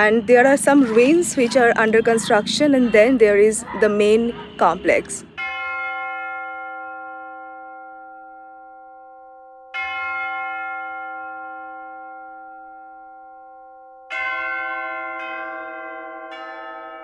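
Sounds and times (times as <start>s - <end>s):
church bell strokes: 4.6s - 17.0s.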